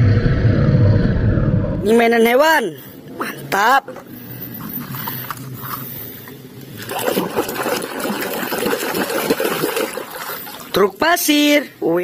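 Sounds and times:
water splashing and sloshing: 0:03.9 - 0:11.0.

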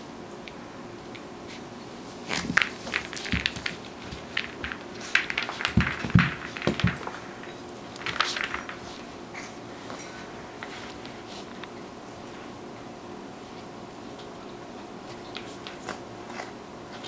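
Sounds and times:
paws scuffling and clicking: 0:01.1 - 0:12.5, 0:13.5 - 0:17.0
ball thumping on floor: 0:02.4 - 0:08.8.

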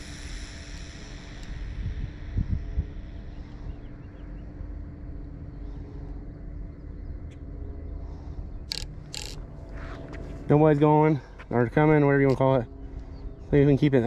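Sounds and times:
steady low hum: 0:00.0 - 0:14.0
wind rumbling on microphone: 0:00.8 - 0:05.8
faint bird chirps: 0:02.6 - 0:10.1.

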